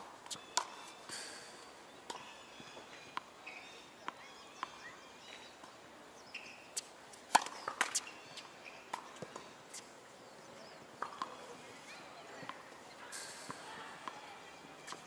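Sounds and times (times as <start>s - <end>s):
tennis ball bouncing on court: 0.3s - 0.8s, 6.8s - 8.1s, 8.9s - 9.8s, 11.0s - 11.4s, 12.4s - 12.6s, 13.5s - 14.2s
racket striking ball: 7.3s - 8.1s.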